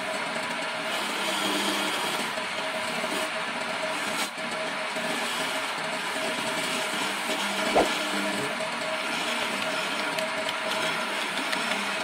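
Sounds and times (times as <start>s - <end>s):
chisel cutting spinning wood: 0.0s - 12.0s
lathe motor running: 0.1s - 12.0s.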